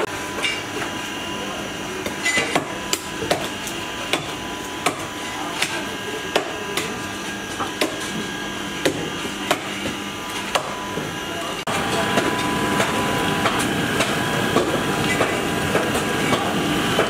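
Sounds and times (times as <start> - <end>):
steady background hum: 0.0 - 17.0.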